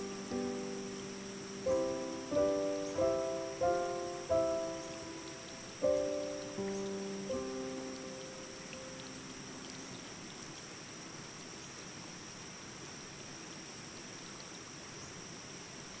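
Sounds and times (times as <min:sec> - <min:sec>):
soft background music: 0:00.0 - 0:09.5
high-pitched hiss and whine: 0:00.0 - 0:16.0.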